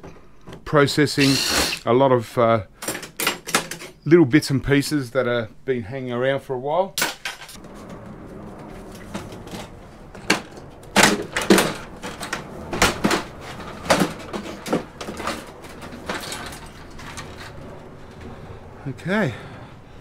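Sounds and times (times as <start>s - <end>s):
plastic casing knocking and creaking: 10.2s - 17.5s.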